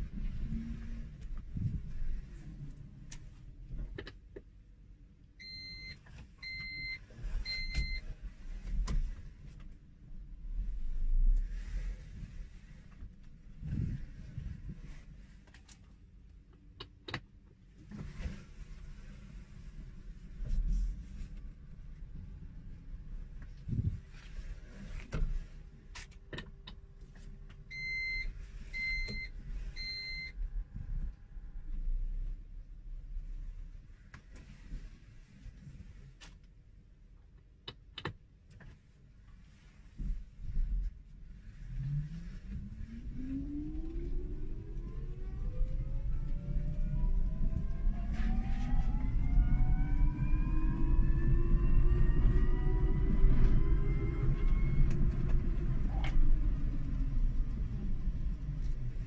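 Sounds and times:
reverse warning beeps: 0:05.4 - 0:08.0, 0:27.7 - 0:30.3
electronic reverse beeps: 0:27.7 - 0:30.3, 0:46.6 - 0:55.3.

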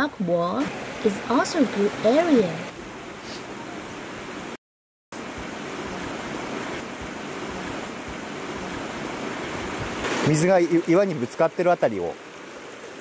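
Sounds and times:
stream rushing over rocks: 0:00.6 - 0:02.7, 0:05.2 - 0:13.0.

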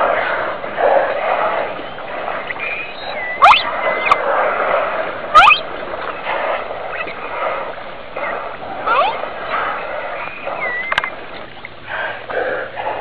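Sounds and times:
dolphins squealing: 0:00.0 - 0:11.9
water splashing: 0:00.0 - 0:13.0.

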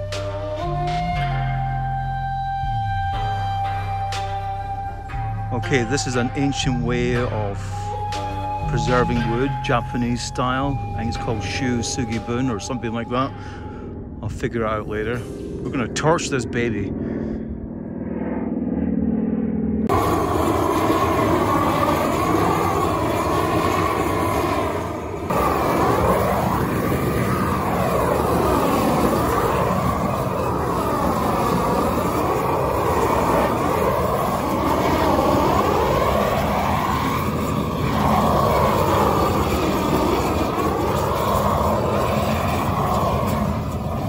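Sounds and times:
gas torch flame burning: 0:19.9 - 0:44.0.

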